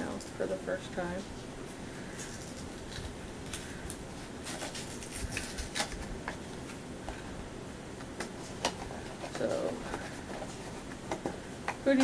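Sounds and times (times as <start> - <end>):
cardboard rustling: 2.1 - 7.3, 8.0 - 12.0.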